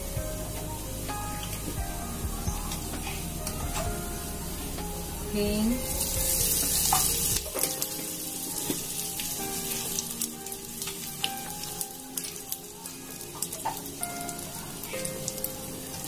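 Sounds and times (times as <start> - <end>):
spices sizzling in hot oil: 0.0 - 16.0
crackles and pops: 5.9 - 16.0.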